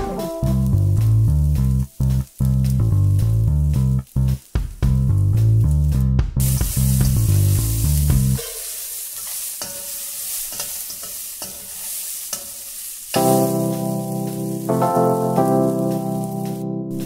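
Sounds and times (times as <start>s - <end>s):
piano-like tune: 0.0s - 2.0s, 13.2s - 17.0s
background music: 0.0s - 3.6s, 13.2s - 17.0s
beans sizzling in a pan: 0.0s - 17.0s
metal spoon scraping a pan: 8.3s - 13.2s.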